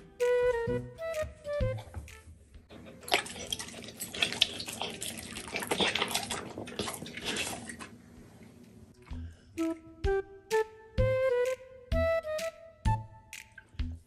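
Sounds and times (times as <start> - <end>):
dog licking and chewing meat: 2.8 - 8.0.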